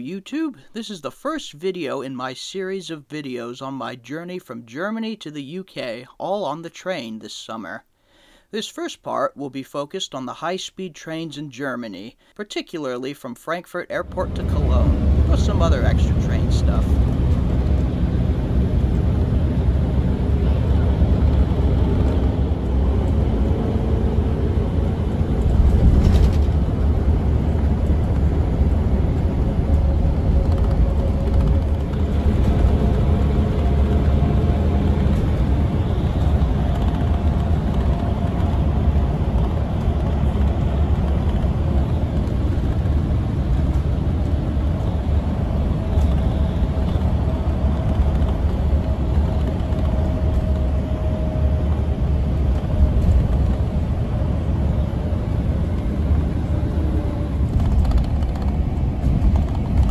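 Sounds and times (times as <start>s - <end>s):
vehicle road rumble: 14.0s - 59.9s.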